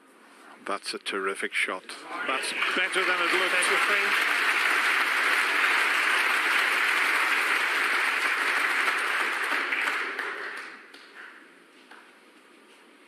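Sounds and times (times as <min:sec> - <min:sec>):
audience clapping: 0:02.2 - 0:11.5.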